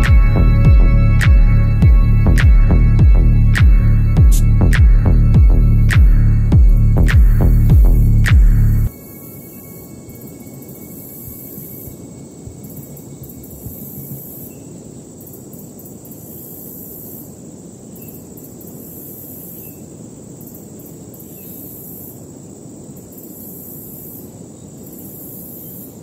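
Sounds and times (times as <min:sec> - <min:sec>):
high insect buzz: 0:00.0 - 0:17.4.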